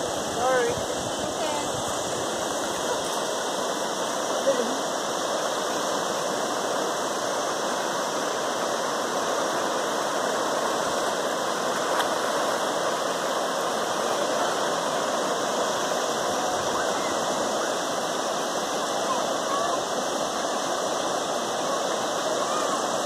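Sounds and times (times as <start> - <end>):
river rapids rushing over rocks: 0.0 - 23.0.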